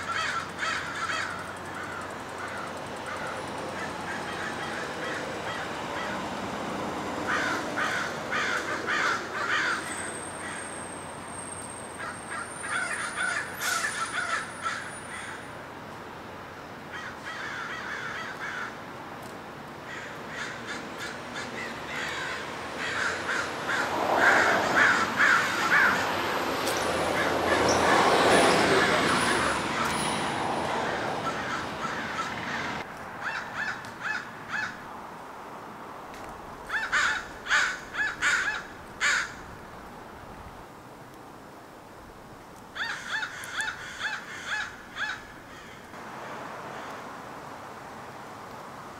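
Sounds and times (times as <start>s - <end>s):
crows cawing: 0.0s - 6.3s, 7.2s - 10.7s, 12.0s - 15.5s, 16.9s - 18.8s, 19.8s - 26.4s, 27.1s - 29.9s, 30.6s - 34.8s, 36.7s - 39.5s, 42.7s - 46.0s, 46.7s - 47.1s
road traffic noise: 0.0s - 48.9s.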